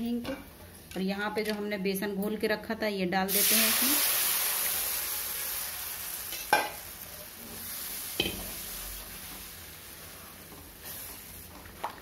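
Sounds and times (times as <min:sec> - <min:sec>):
batter sizzling in hot oil: 0:03.3 - 0:12.0.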